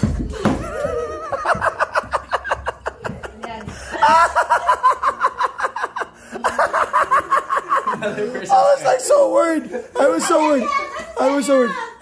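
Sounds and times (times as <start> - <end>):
woman laughing: 0.4 - 8.5.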